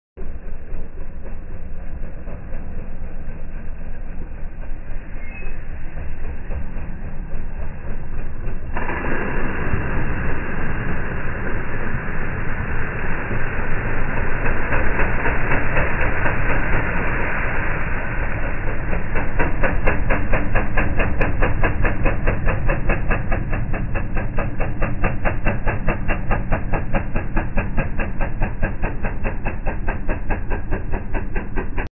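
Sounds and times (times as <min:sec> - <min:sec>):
slowed engine rumble: 0:00.2 - 0:31.9
splashing water hiss: 0:08.7 - 0:30.1.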